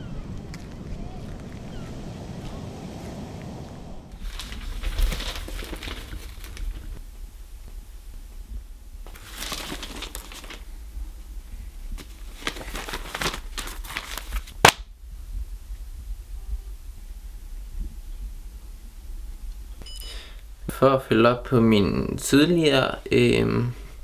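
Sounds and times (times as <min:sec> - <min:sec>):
newspaper pages rustling: 0:04.1 - 0:07.0, 0:09.0 - 0:10.8, 0:11.9 - 0:14.8
paper slapped on table: 0:14.6 - 0:14.9.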